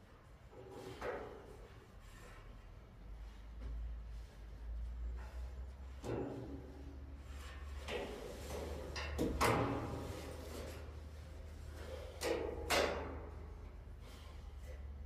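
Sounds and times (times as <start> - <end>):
metal clanks and knocks: 5.2 - 10.9, 11.8 - 13.8.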